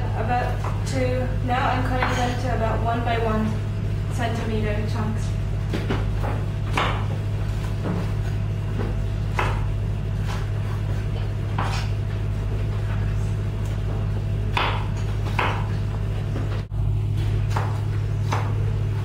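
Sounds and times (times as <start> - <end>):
steady low hum: 0.0 - 19.0
knife cutting on wooden board: 11.5 - 12.0.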